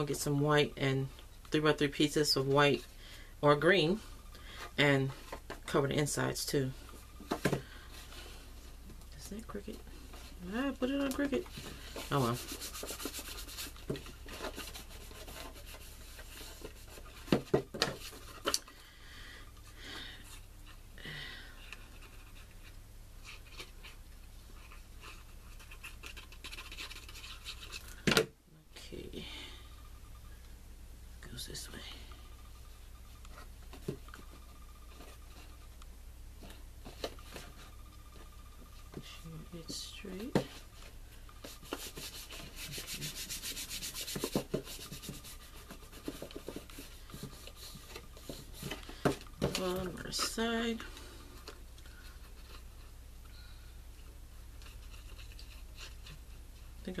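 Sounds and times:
faint low hum: 0.0 - 57.0
palm rubbing on paper: 10.4 - 17.1, 41.4 - 48.7.

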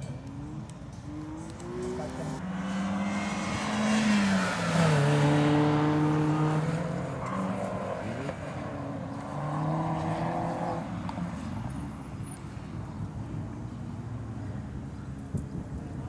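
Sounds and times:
car engine revving hard: 1.2 - 8.4.

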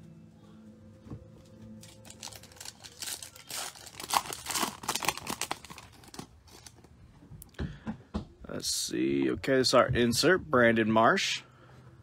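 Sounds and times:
foil wrapper crinkling and tearing: 1.8 - 6.8.

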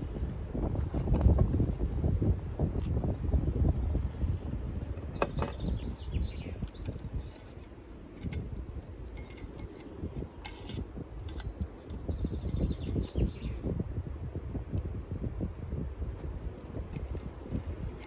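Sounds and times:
wind buffeting microphone: 0.0 - 18.0
metallic clinks of stove parts: 9.1 - 12.0.

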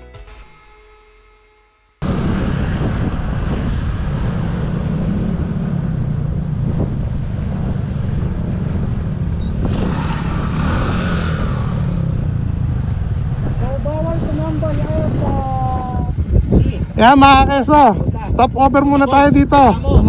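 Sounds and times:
high whine: 0.0 - 16.2
wind buffeting microphone: 2.0 - 20.0.

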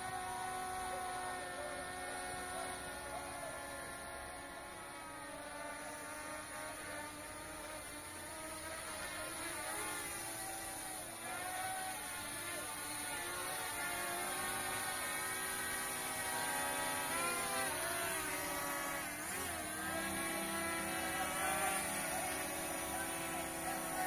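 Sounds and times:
drone propellers whining overhead: 0.0 - 24.0.

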